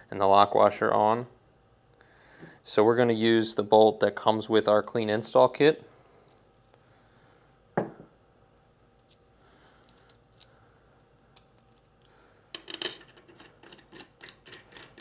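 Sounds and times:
metal washers clinking: 8.8s - 15.0s.

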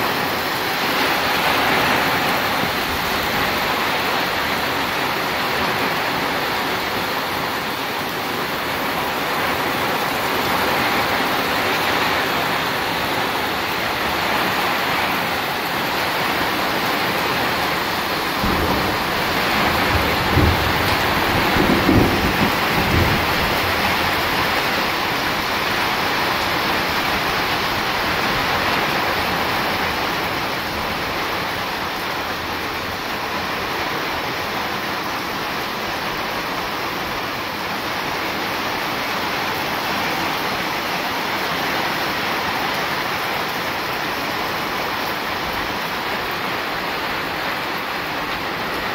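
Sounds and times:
steady rain: 0.0s - 48.9s
thunder rumbling: 16.0s - 32.1s.

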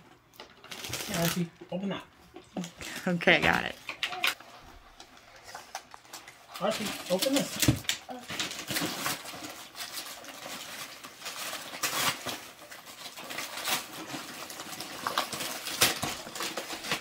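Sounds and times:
wrapping paper rustling and tearing: 0.4s - 1.5s, 3.6s - 17.0s.

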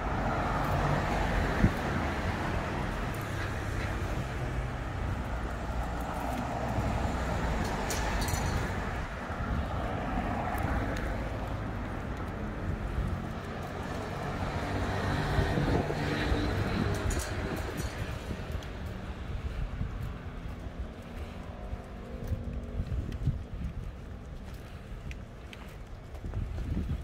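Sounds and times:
cars driving past: 0.0s - 27.0s.

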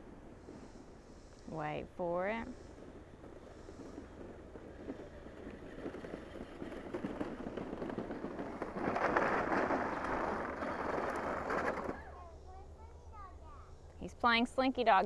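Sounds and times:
toy car plastic wheels rattling: 4.8s - 12.1s.

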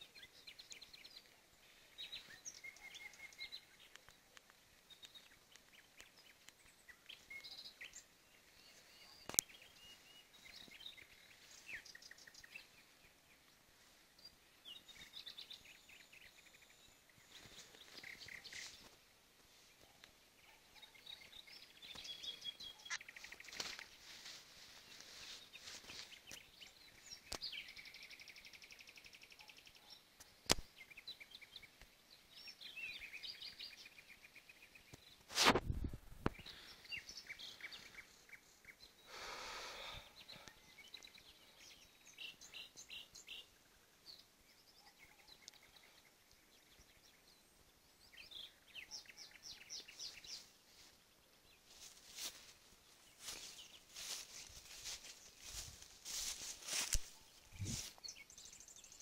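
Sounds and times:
animals chirping and trilling: 0.0s - 13.2s, 13.8s - 31.7s, 51.6s - 59.0s
sharp click: 30.5s - 30.7s.

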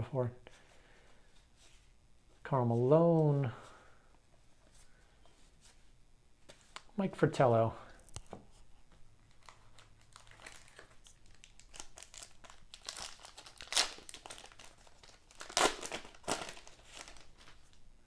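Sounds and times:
wrapper tearing and crinkling: 9.2s - 17.8s.

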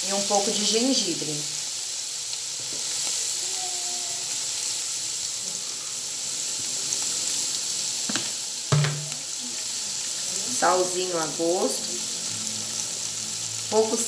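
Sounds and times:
meat sizzling in hot oil: 0.0s - 14.0s
knock: 8.1s - 9.2s.

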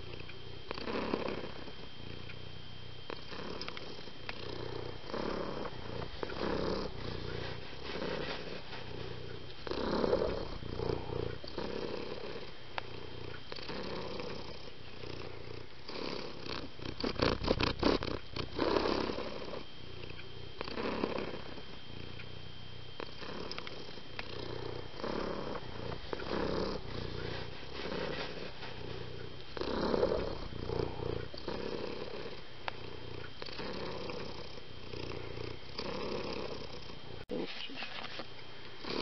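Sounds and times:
cat purring: 0.0s - 38.2s, 38.8s - 39.0s.

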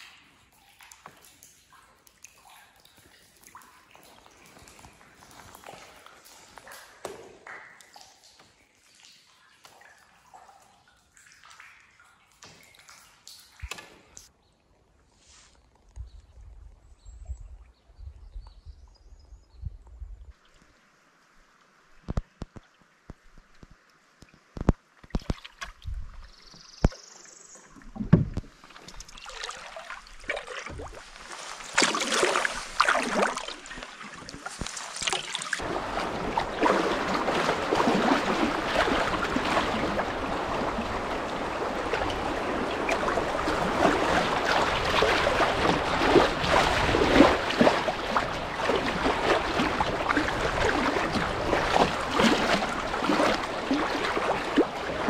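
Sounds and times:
water rushing around a canoe: 21.7s - 55.0s.

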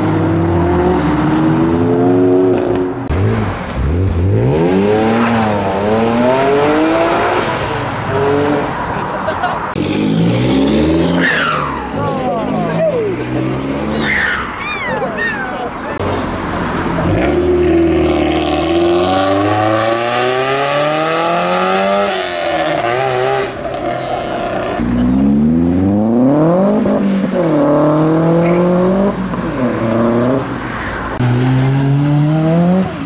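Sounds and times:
car engines revving: 0.0s - 33.0s.

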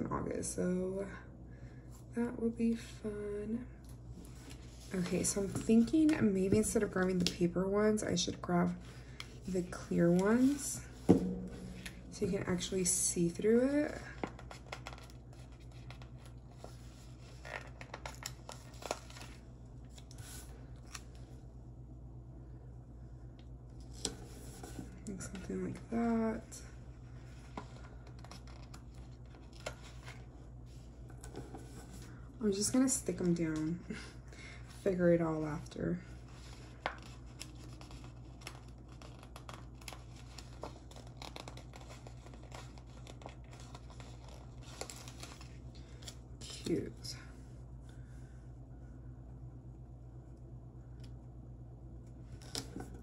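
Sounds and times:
plastic stickers being peeled: 14.2s - 16.6s, 17.2s - 21.2s, 28.0s - 30.2s, 36.8s - 46.7s.

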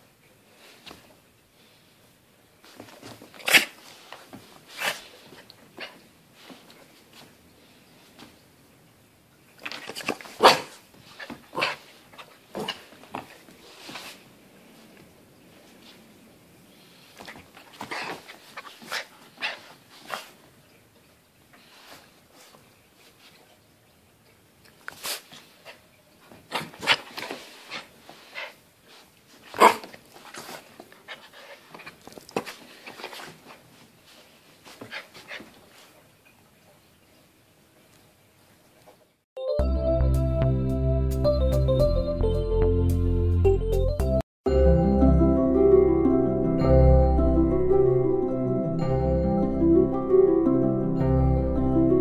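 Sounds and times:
puppy barking: 10.4s - 10.8s, 29.6s - 29.9s.

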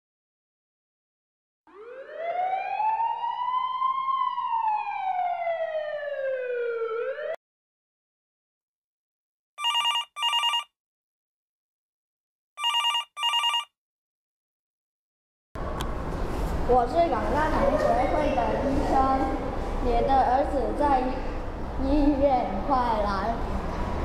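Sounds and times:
siren wailing: 1.7s - 7.4s
telephone ringing: 9.6s - 10.7s, 12.6s - 13.7s.

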